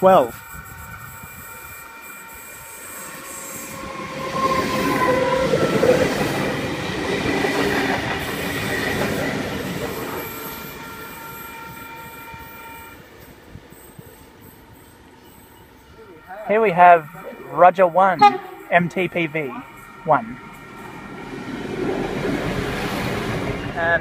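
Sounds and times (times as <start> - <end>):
train passing rumble: 0.0 - 24.0
squealing wheels: 8.2 - 19.1.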